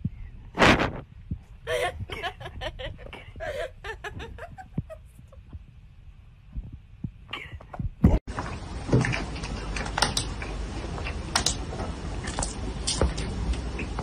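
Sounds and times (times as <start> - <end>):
low thuds: 0.0 - 8.3.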